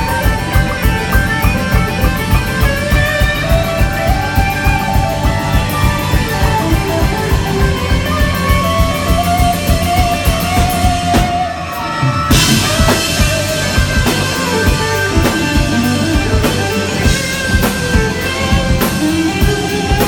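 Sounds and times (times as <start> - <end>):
drum beat: 0.0 - 11.5, 12.3 - 20.0
bass guitar: 0.0 - 20.0
electric guitars: 0.0 - 20.0.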